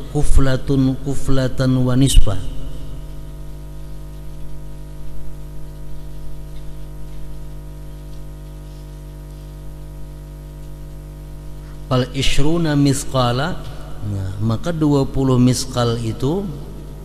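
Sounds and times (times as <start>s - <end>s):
electrical mains hum: 0.0s - 17.0s
microphone hiss: 0.0s - 17.0s.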